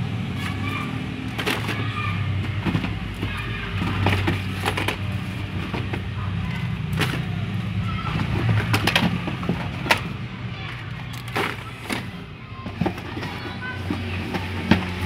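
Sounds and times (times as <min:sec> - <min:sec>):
cardboard boxes knocking together: 0:01.3 - 0:10.2, 0:11.1 - 0:15.0.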